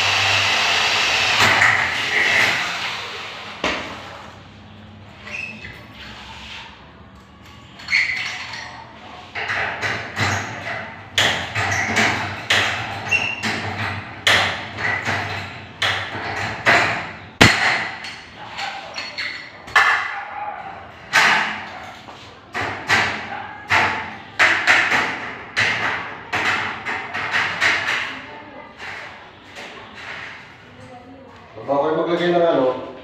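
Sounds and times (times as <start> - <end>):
sharp crack: 17.4 - 17.9.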